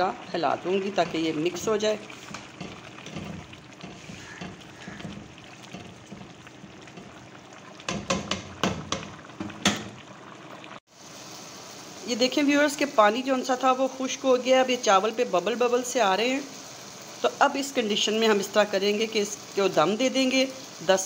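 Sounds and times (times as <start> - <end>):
rice bubbling in pot: 0.0 - 21.0
spoon knocking against pot: 2.3 - 7.2, 7.8 - 10.0.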